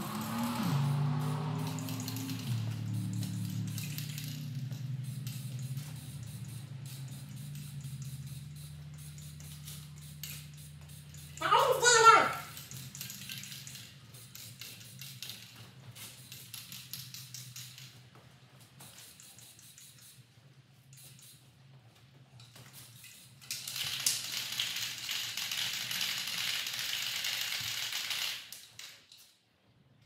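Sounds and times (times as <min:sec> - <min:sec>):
spray paint hissing: 0:00.0 - 0:17.9, 0:18.8 - 0:21.5
spray can ball rattling: 0:00.0 - 0:18.0, 0:18.8 - 0:20.3, 0:20.9 - 0:21.4, 0:22.4 - 0:29.2.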